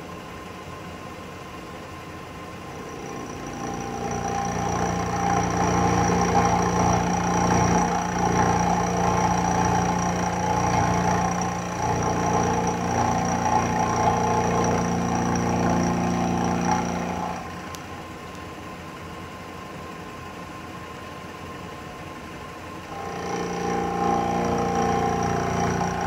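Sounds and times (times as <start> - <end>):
milling machine cutting metal: 2.7 - 17.8, 22.9 - 26.0.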